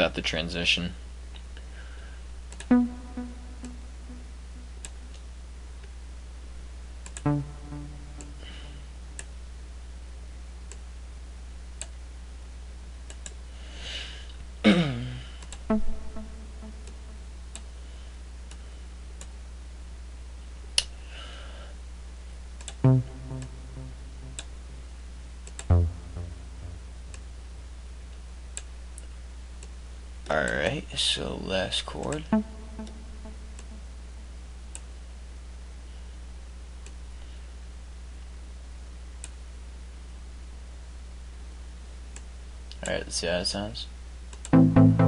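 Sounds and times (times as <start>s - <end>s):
steady low hum: 0.0s - 42.8s
short synthesizer notes: 2.7s - 4.8s, 7.2s - 8.9s, 15.7s - 17.3s, 22.8s - 24.9s, 25.7s - 27.4s, 32.2s - 34.0s, 44.5s - 45.0s
faint mouse clicks: 13.1s - 13.4s.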